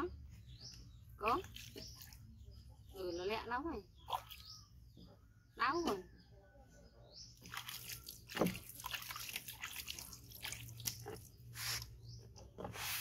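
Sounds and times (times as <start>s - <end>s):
water splashing and dripping: 1.2s - 2.3s, 4.0s - 4.7s, 7.4s - 11.8s.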